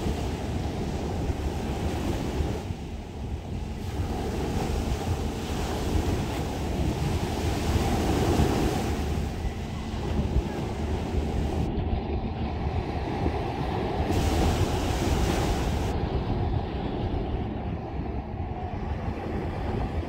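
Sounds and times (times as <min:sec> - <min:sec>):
small waves breaking on shore: 0:00.0 - 0:11.7, 0:12.8 - 0:16.1
wind rumbling on microphone: 0:00.0 - 0:20.0.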